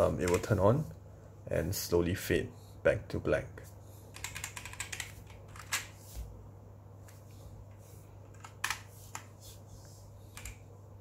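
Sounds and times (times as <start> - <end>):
mechanical keyboard keystrokes: 0.2 - 0.5, 4.1 - 5.9.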